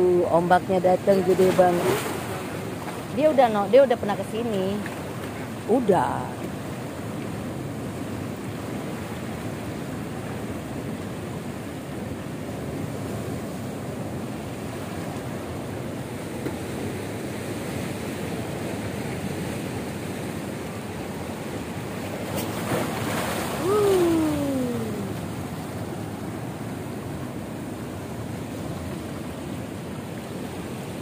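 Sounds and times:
waves breaking on rocky shore: 0.2s - 31.0s
wind on microphone: 22.4s - 28.9s.

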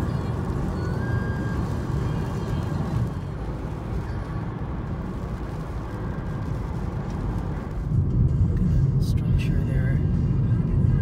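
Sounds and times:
car interior road rumble: 0.0s - 11.0s.

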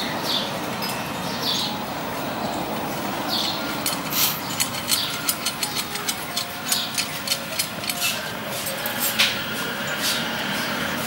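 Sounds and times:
steady background hum: 0.0s - 11.0s
metal spokes clicking: 2.8s - 9.4s.

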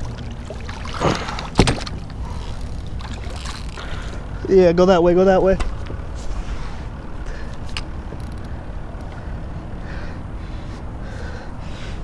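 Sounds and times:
water lapping against kayak hull: 0.0s - 4.5s.

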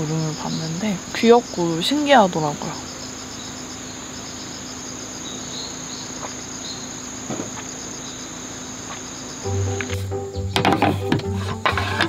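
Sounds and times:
insects trilling: 0.0s - 12.0s
background music: 9.4s - 12.0s.

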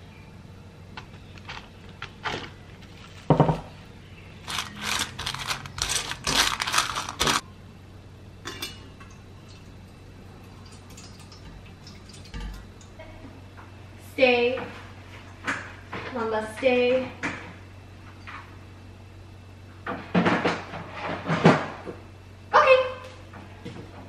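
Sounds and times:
plastic wrap crinkling: 4.4s - 7.4s.

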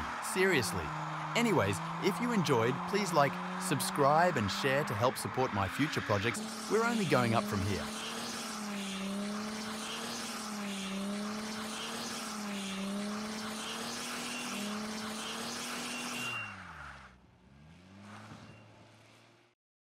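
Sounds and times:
car engine revving high: 0.0s - 19.1s
spinning tyres hissing: 0.0s - 19.4s.

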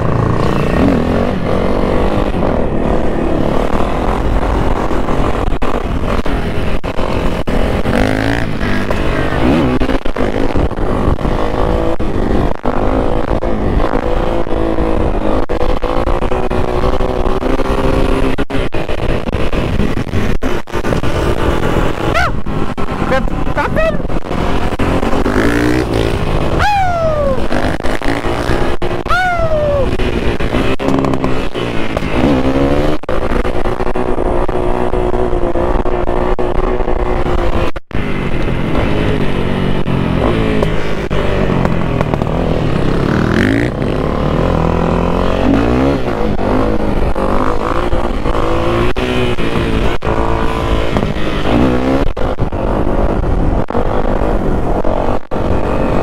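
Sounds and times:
off-road vehicle engine revving: 7.1s - 56.0s.

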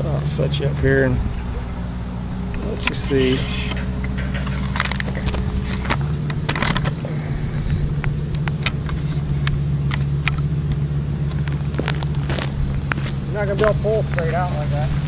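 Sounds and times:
truck engine running: 0.0s - 15.0s
sharp clicks: 1.2s - 13.8s.

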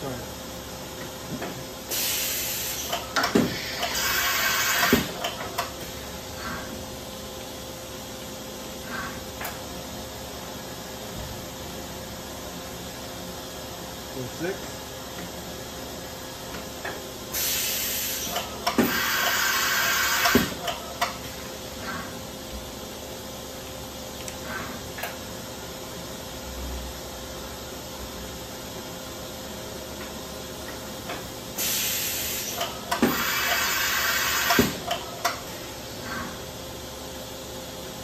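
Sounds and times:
air hissing: 1.9s - 5.2s, 17.3s - 20.6s, 31.5s - 34.9s.

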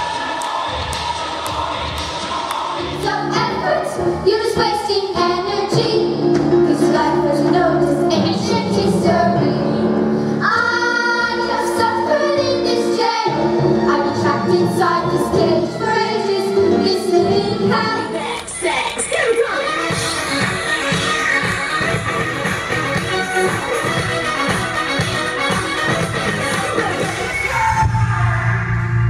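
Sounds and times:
young voices singing: 0.0s - 22.0s.

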